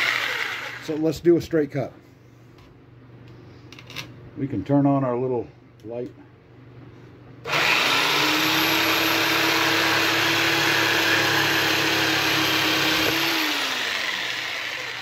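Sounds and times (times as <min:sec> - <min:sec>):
jigsaw sawing through wood: 0:00.0 - 0:01.0, 0:07.5 - 0:15.0
jigsaw winding down: 0:00.0 - 0:01.0, 0:07.5 - 0:15.0.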